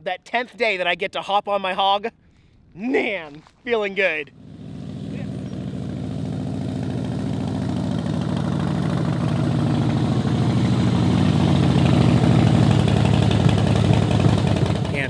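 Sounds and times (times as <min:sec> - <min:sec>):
motorcycle engine approaching: 0:04.3 - 0:15.0.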